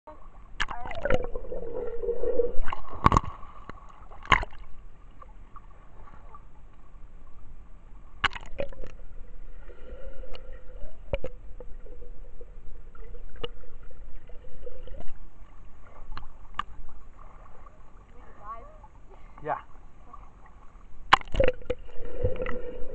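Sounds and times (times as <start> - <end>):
underwater water sloshing and bubbling: 0.1 - 22.9
steady hum: 6.5 - 19.3.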